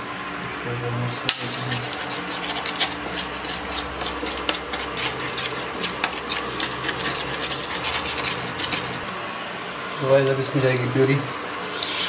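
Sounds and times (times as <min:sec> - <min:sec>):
spatula scraping a pan: 0:01.3 - 0:09.1
spices sizzling in oil: 0:01.4 - 0:09.2, 0:11.6 - 0:12.0.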